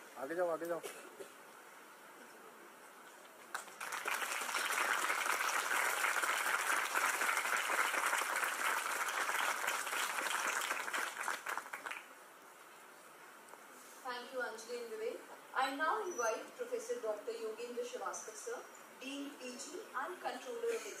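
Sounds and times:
audience applauding: 3.5s - 12.1s.

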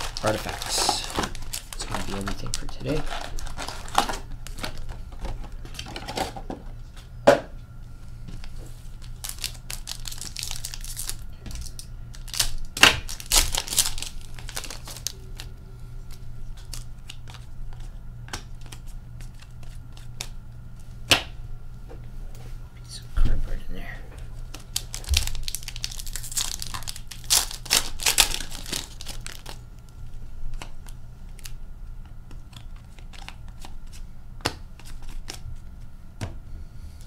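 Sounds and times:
cards rustling: 0.0s - 6.4s, 8.4s - 20.4s, 24.4s - 35.4s
foil wrappers crinkling and tearing: 0.0s - 6.4s, 8.4s - 20.4s, 24.4s - 31.6s, 32.3s - 34.0s.

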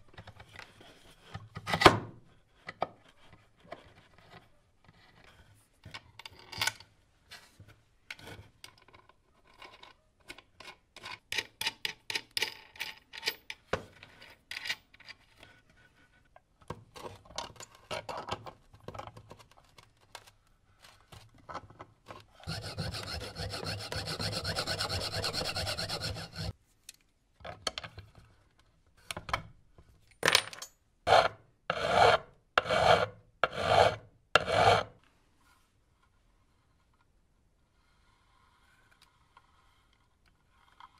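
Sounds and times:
knife blade rasping on board: 22.5s - 26.5s.

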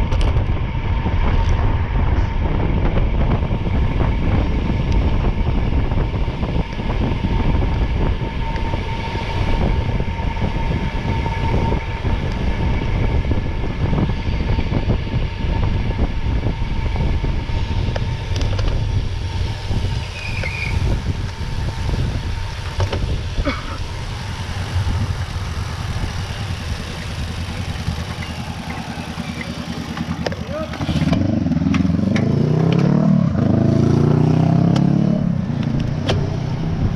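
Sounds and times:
vehicle rumble: 0.0s - 36.9s
thin steady whine: 0.6s - 30.6s.

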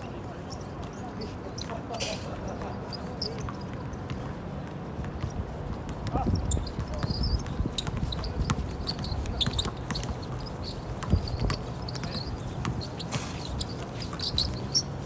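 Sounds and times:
basketball bouncing: 5.0s - 14.6s
short high squeaks: 6.3s - 15.0s.

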